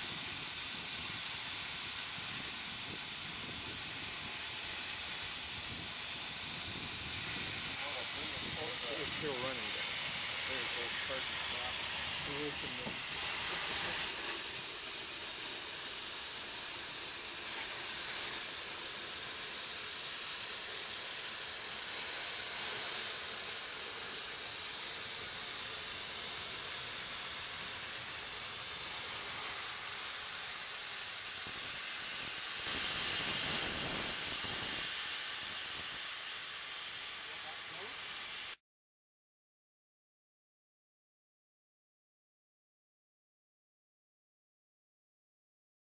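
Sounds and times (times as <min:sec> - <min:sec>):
steam hissing: 0:00.0 - 0:38.6.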